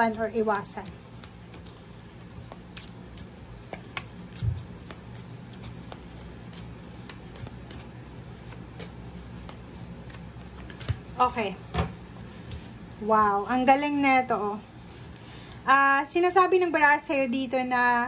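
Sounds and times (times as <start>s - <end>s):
steady low hum: 0.0s - 17.3s
cards being shuffled: 0.7s - 11.1s.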